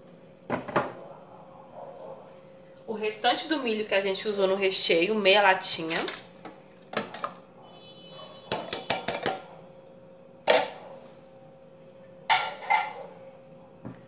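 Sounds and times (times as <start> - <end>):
containers and utensils clinking: 5.8 - 7.4, 8.5 - 9.5.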